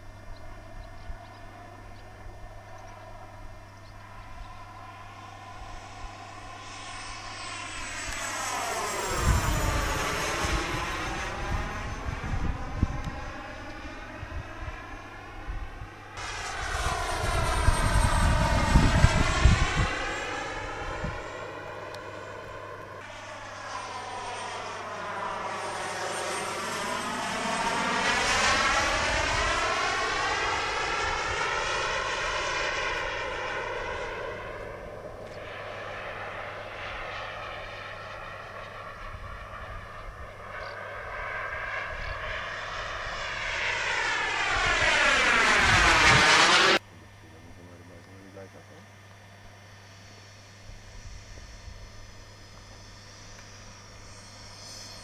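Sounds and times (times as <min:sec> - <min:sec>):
model jet flying past: 0:00.0 - 0:55.0.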